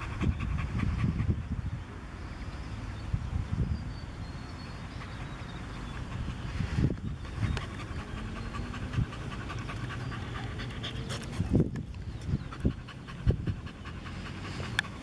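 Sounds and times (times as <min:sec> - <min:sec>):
dog panting: 0:00.0 - 0:01.5, 0:04.9 - 0:15.0.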